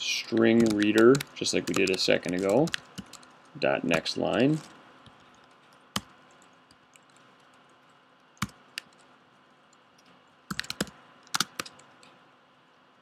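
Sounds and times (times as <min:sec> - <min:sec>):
faint steady hiss: 0:00.0 - 0:13.0
computer keyboard keystrokes: 0:00.4 - 0:03.3, 0:10.5 - 0:12.2.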